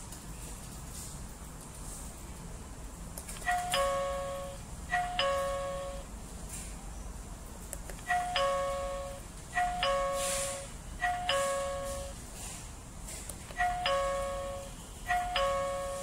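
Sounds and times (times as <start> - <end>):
two-note ding-dong chime: 3.5 - 6.1, 8.1 - 12.2, 13.6 - 16.0.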